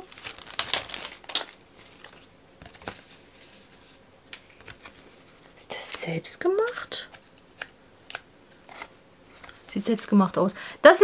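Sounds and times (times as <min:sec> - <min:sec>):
paper and packaging crinkling: 0:00.0 - 0:05.6.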